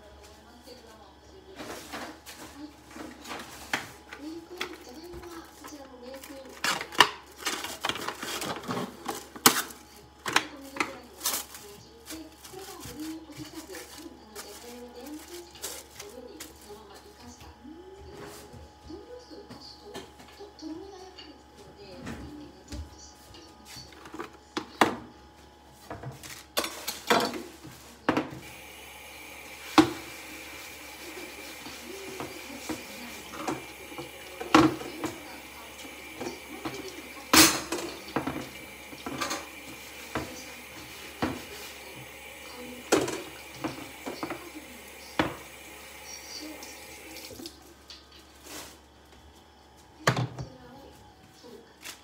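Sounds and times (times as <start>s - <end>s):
tap running into a sink: 29.7s - 30.4s, 31.0s - 48.0s
dishes and utensils clattering: 31.6s - 45.5s.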